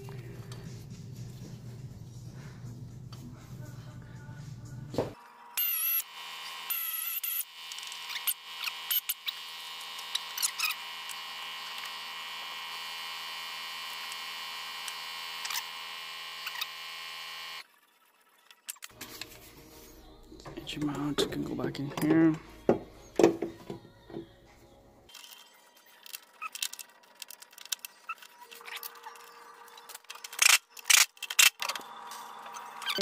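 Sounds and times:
electrical hum: 0.0s - 17.6s.

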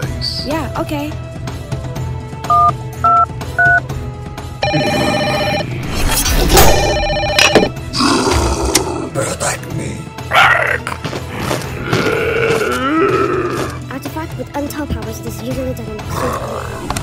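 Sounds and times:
background music: 0.0s - 17.0s
telephone keypad beeps: 2.5s - 3.8s, 6.7s - 7.7s
telephone ringing tone: 2.5s - 3.8s, 4.6s - 5.8s, 6.6s - 7.8s.

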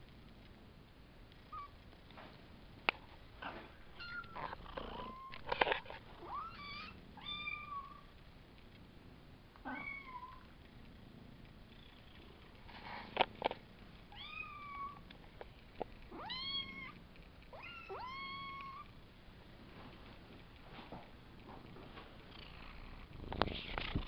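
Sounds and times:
kittens meowing: 3.9s - 5.5s, 16.1s - 18.9s.

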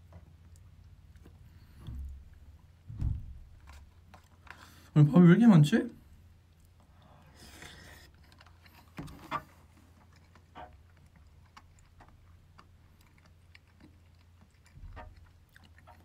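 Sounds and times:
soft low bump: 1.8s - 3.9s.

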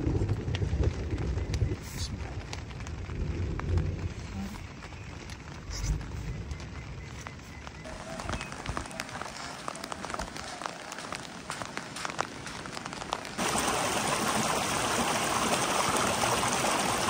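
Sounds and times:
heavy rain rushing: 0.0s - 7.2s, 7.8s - 17.0s
raindrops striking a surface: 0.0s - 17.0s.

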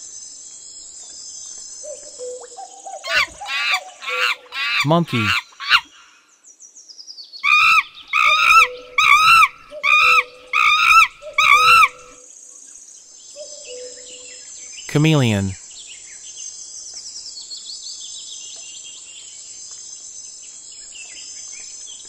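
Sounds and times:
monkey calling: 3.0s - 5.9s, 7.4s - 12.2s.

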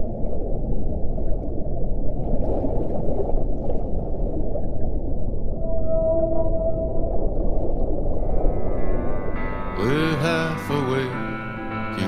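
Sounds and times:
muffled low rumbling: 0.0s - 10.2s.

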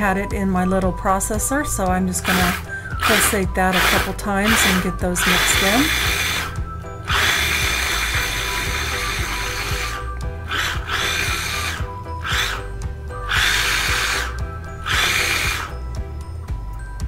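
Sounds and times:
food processor whirring: 2.2s - 16.0s.

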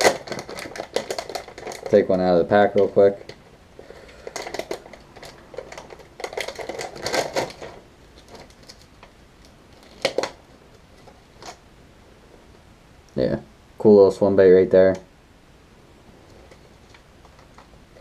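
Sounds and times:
plastic pack crinkling: 0.0s - 11.6s.

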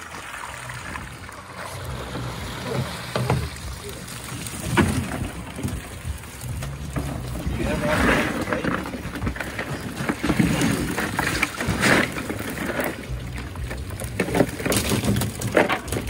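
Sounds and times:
low rumble: 0.0s - 16.0s
fish flapping against net and plastic: 4.5s - 16.0s.

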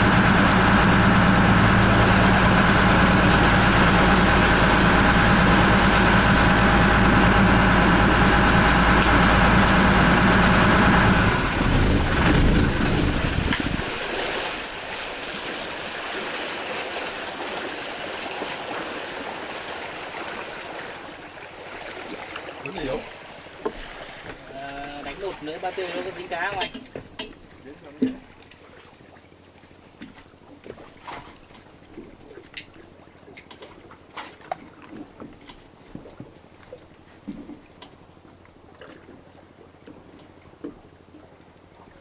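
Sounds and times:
boat engine running: 0.0s - 28.6s
wind and water hiss: 0.0s - 42.0s.

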